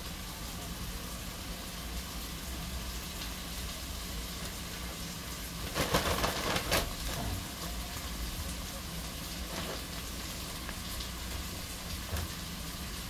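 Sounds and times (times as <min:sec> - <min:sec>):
liver sizzling in hot oil: 0:00.0 - 0:13.0
crackling rustle: 0:02.9 - 0:13.0.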